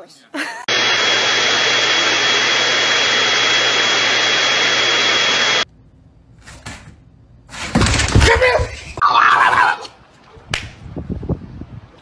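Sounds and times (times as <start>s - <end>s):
electric appliance motor whining: 0.7s - 5.6s.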